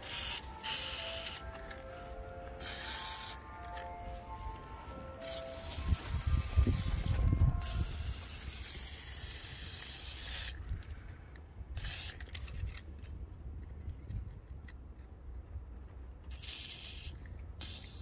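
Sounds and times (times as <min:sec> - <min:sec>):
aerosol spray hiss: 0:00.1 - 0:01.4.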